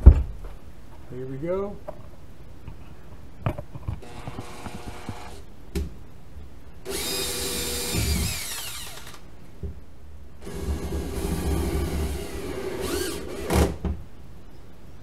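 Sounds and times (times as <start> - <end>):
drill clicks: 4.0 - 5.4, 6.9 - 9.2
drill motor whining: 4.0 - 5.4, 6.9 - 9.2, 10.4 - 13.7.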